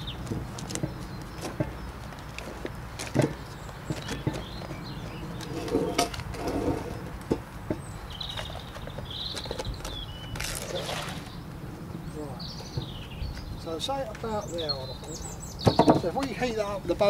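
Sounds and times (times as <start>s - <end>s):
knocks and rustling from handling: 0.2s - 4.8s
small bird chirping: 3.4s - 6.1s, 7.7s - 16.5s
steady low rumble: 11.1s - 13.8s.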